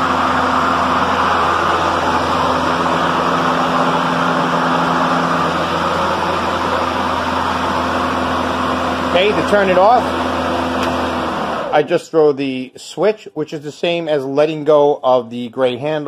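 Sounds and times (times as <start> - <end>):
lawn mower running: 0.0 - 11.9.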